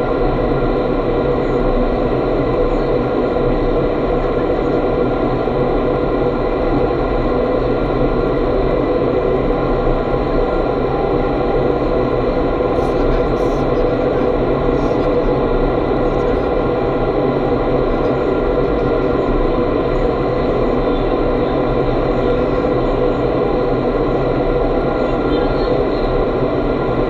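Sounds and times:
constant hum: 0.0 - 27.0.

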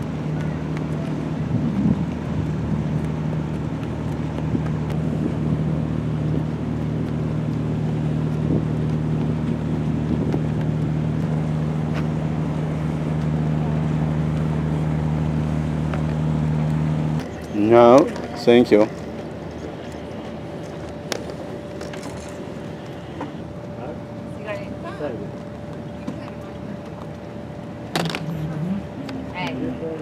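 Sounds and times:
wind on microphone: 0.0 - 15.7
boat engine humming: 0.0 - 30.0.

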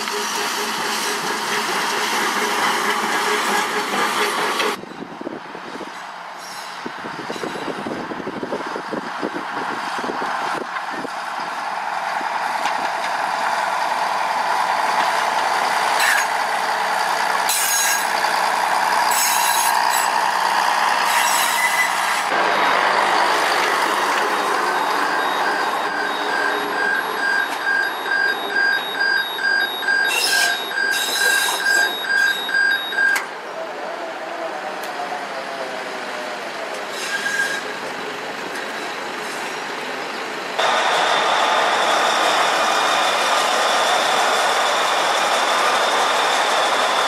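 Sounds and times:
train rolling past: 0.0 - 47.0
electronic warning beep: 24.7 - 33.2.

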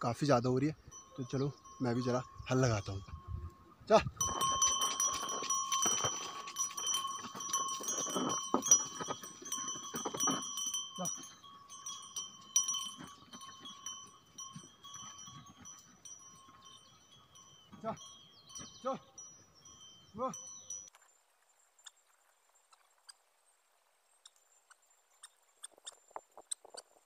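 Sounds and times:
man calling to animals: 0.0 - 4.2, 11.0 - 11.2, 17.7 - 18.0, 18.6 - 19.2, 20.1 - 20.5
neck bell ringing: 0.0 - 20.9.

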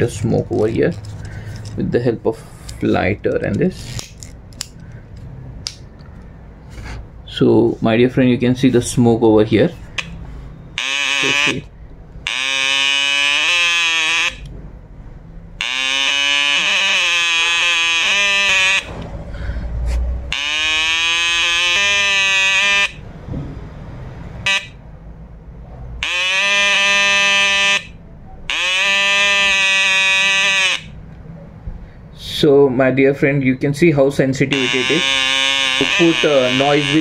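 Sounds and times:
buzzy square-wave alarm tone: 10.7 - 14.5, 15.6 - 19.0, 20.3 - 23.0, 24.4 - 24.8, 26.0 - 31.0, 34.5 - 37.0.

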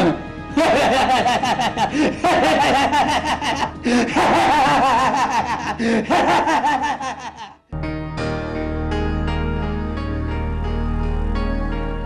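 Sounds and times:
loud rhythmic laughter: 0.5 - 7.6.

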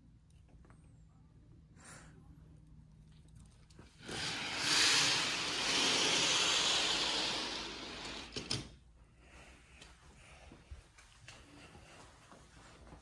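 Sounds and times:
sliding glass door rolling: 4.0 - 8.7.

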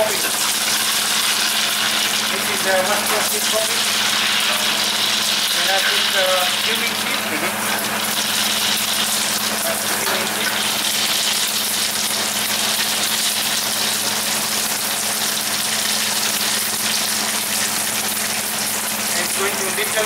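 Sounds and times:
seeds sizzling in hot oil: 0.0 - 20.0.

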